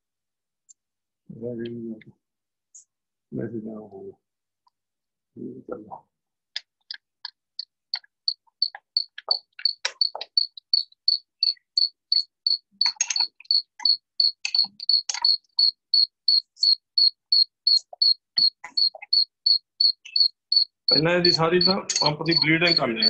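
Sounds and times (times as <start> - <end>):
high-pitched chirp: 8.6 - 23.0
metal clicks and taps: 12.8 - 15.4.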